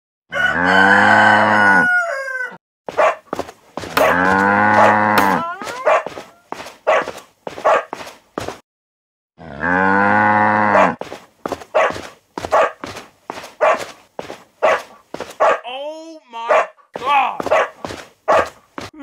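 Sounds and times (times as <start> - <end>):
cattle mooing: 0.4 - 2.0, 4.0 - 5.9, 9.4 - 11.0.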